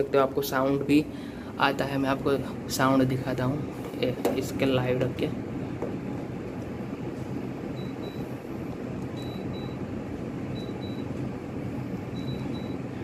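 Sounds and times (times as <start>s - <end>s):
air conditioner double beeps: 7.6s - 13.0s.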